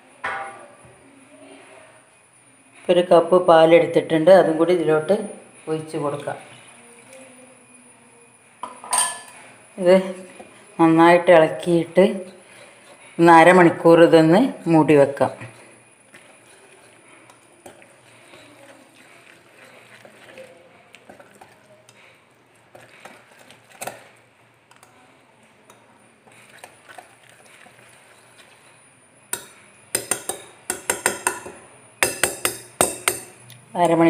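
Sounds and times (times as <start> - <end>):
whisk stirring thick batter: 15.2 - 24.9, 25.7 - 31.4
whisk clinking against bowl: 29.3 - 33.4.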